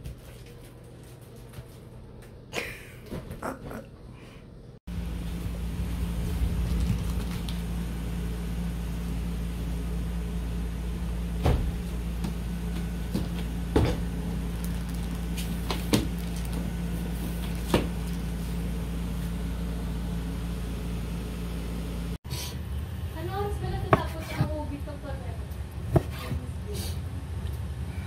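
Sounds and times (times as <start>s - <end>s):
low hum: 3.6s - 25.8s.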